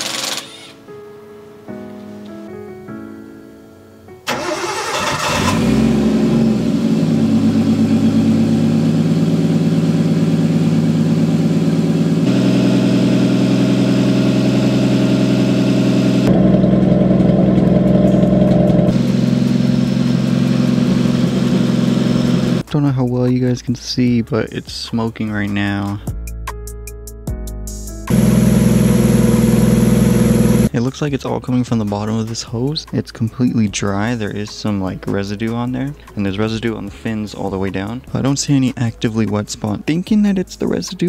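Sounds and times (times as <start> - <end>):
car engine starting and idling: 4.3 - 22.6, 28.1 - 30.7.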